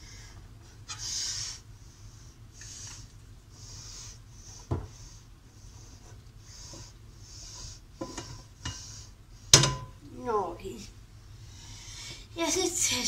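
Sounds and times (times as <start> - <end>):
utensil knocks and clank: 9.5 - 10.0.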